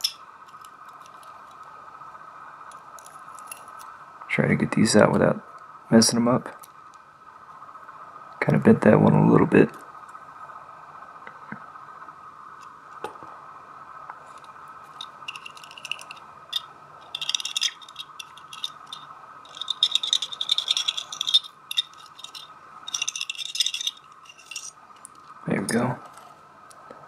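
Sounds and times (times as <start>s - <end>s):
metal lock pins rattling: 0.0s - 1.3s, 3.0s - 3.9s, 14.9s - 24.7s.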